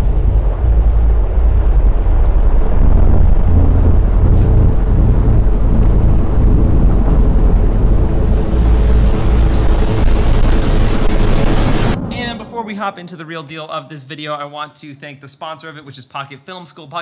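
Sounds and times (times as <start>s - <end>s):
rain hissing: 0.0s - 12.4s
deep rumble with low hum: 0.0s - 12.6s.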